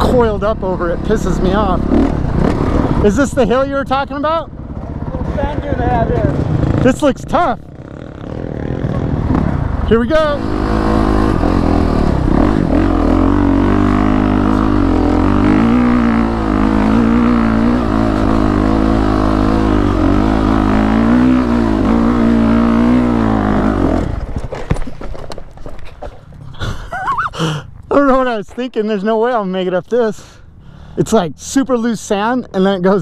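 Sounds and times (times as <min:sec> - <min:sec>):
dirt bike engine revving: 0:00.0 - 0:24.4.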